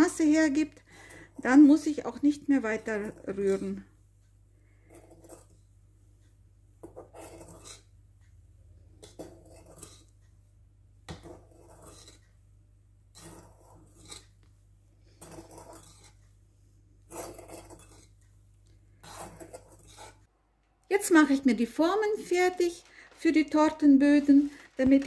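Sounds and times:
spatula scraping a mixing bowl: 0.0 - 4.1, 4.7 - 5.8, 6.8 - 8.0, 9.0 - 10.2, 11.1 - 12.4, 13.1 - 16.4, 17.0 - 20.3.

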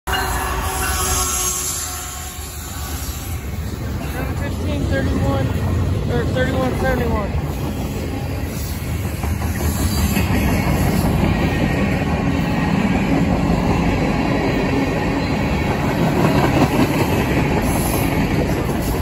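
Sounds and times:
train wheels rumbling on rails: 0.1 - 19.0
wheels clacking over rail joints: 3.4 - 19.0.

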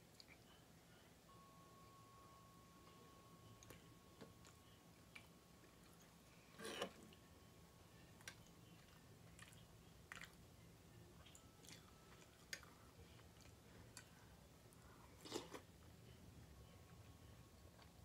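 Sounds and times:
person chewing: 8.2 - 10.4, 11.2 - 15.7.

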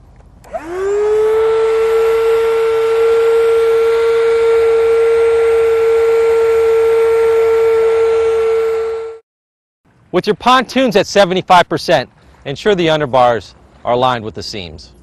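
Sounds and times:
electric pump motor whining: 0.4 - 9.2.

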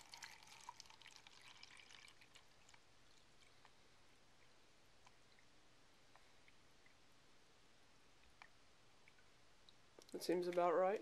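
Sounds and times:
water pouring into plastic tank: 0.0 - 3.6.

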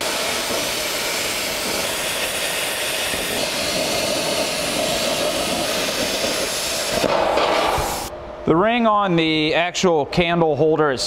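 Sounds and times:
plasma cutter hissing: 0.0 - 8.1.

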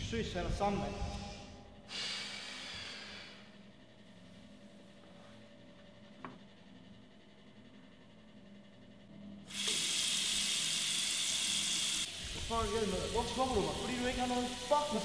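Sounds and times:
tap water running into sink: 9.5 - 12.5.

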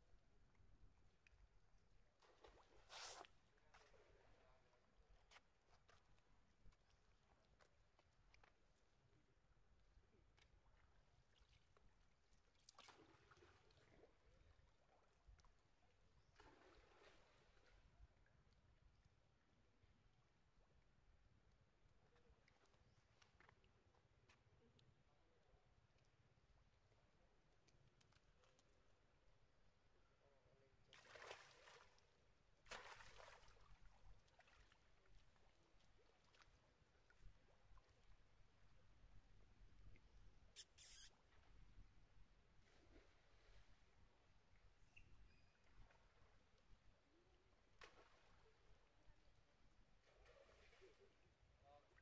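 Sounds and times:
faint splashes of swimming: 0.2 - 52.0
water splashing and lapping: 2.1 - 8.6, 10.4 - 17.9, 30.9 - 38.4
monkey splashing into water: 31.0 - 31.8.

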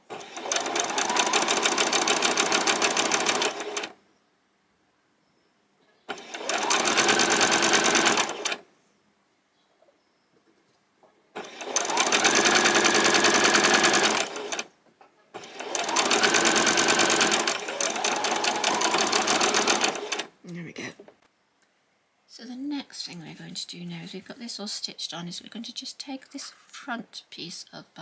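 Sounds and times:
sewing machine stitching: 0.0 - 4.0, 6.1 - 8.6, 11.4 - 14.7, 15.4 - 20.3.

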